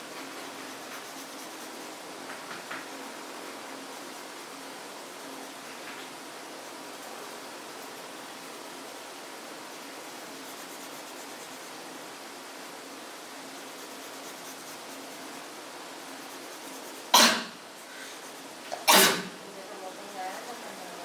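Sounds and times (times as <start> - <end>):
pencil shading on paper: 0.4 - 2.0, 9.7 - 11.9, 13.5 - 17.1
person coughing: 17.2 - 17.6, 18.8 - 19.3.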